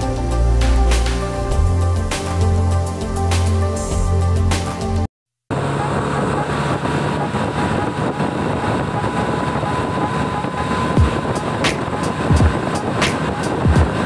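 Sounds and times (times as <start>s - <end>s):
low motorcycle engine hum: 0.0s - 14.0s
wind rush over microphone: 5.6s - 14.0s.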